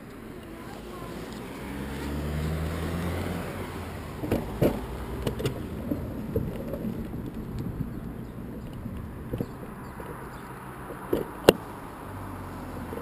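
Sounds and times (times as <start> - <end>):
car driving past: 0.5 - 13.0
camera rattling on a bicycle: 4.1 - 11.6.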